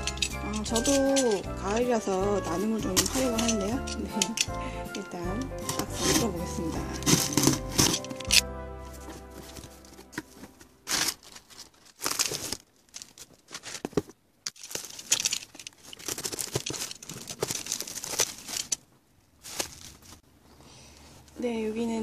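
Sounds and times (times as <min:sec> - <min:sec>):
bubble wrap crinkling: 0:00.0 - 0:20.3
cardboard tearing: 0:09.0 - 0:14.0, 0:14.6 - 0:18.8, 0:19.4 - 0:20.2.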